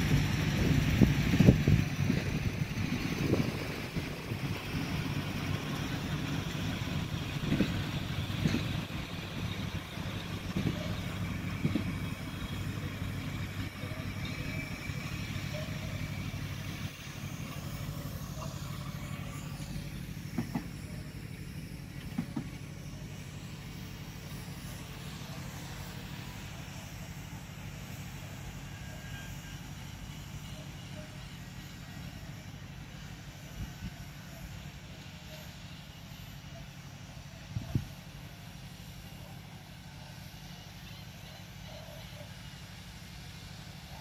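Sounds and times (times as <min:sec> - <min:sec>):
train wheels rumbling on rails: 0:00.0 - 0:23.6
wheels clacking over rail joints: 0:04.0 - 0:18.9, 0:20.2 - 0:21.0.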